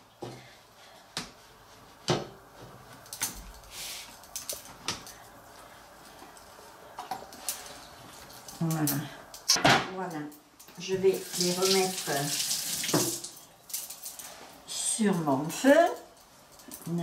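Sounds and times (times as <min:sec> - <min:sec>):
kitchen knocks and clatters: 0:09.5 - 0:10.0.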